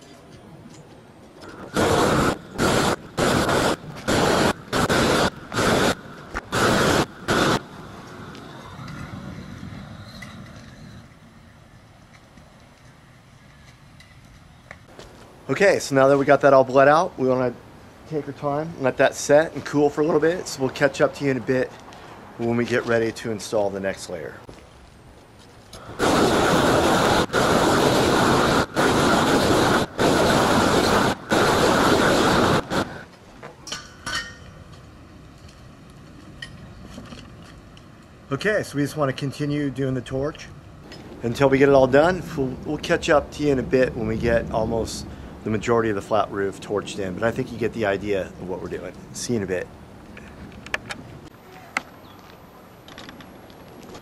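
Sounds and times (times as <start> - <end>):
roofing torch blasts: 1.4 - 33.4, 37.6 - 54.0.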